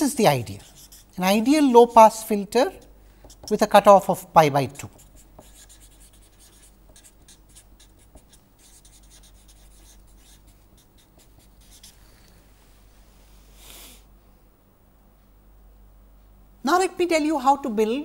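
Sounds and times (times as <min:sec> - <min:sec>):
marker pen scratching on paper: 0:00.4 - 0:03.8, 0:04.8 - 0:12.1.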